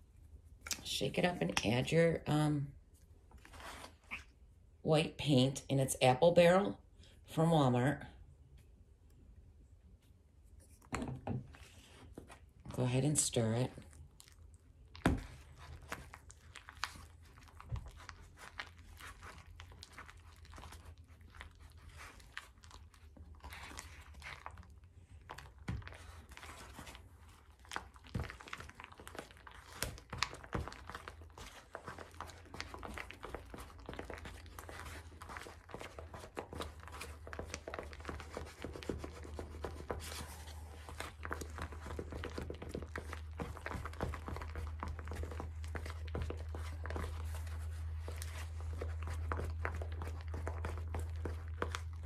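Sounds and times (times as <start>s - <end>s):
paste stirred in a bowl: 10.5s - 52.0s.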